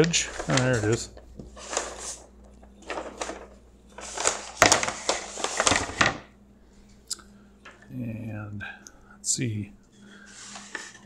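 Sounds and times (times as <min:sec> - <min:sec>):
large paper rustling: 0:00.0 - 0:06.3, 0:10.1 - 0:11.0
plywood sliding on paper: 0:10.3 - 0:11.0.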